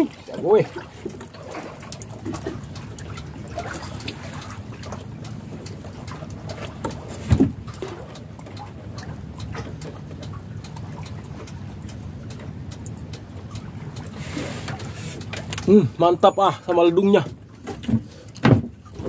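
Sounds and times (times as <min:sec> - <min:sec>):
water lapping against boat hull: 0:00.0 - 0:19.0.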